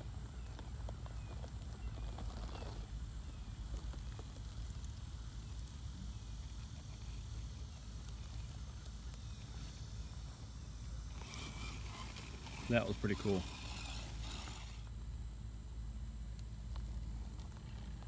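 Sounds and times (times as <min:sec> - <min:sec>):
low steady rumble: 0:00.0 - 0:18.0
tyres clicking and scraping on rock: 0:00.4 - 0:02.9, 0:11.1 - 0:14.8.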